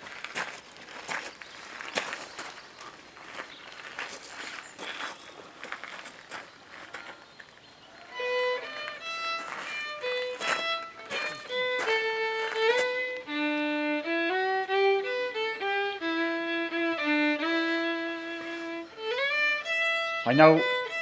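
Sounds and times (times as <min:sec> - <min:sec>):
fiddle playing slow tune: 0:08.0 - 0:21.0.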